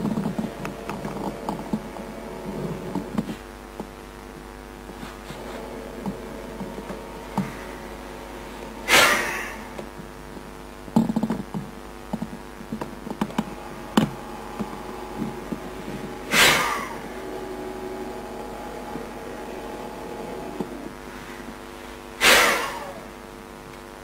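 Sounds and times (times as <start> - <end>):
steady hum: 0.0 - 24.0
forceful exhalations: 6.9 - 9.8, 13.4 - 23.1.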